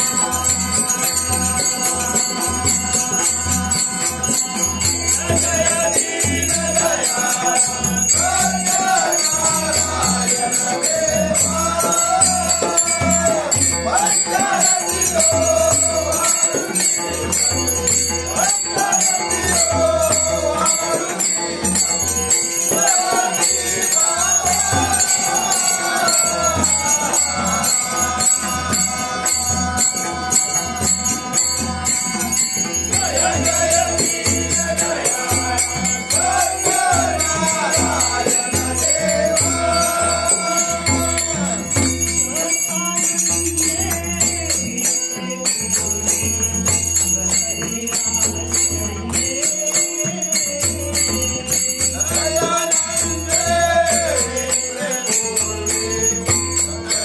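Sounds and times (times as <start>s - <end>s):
harmonium: 0.0s - 57.0s
jingling percussion: 0.0s - 57.0s
men singing together: 0.0s - 57.0s.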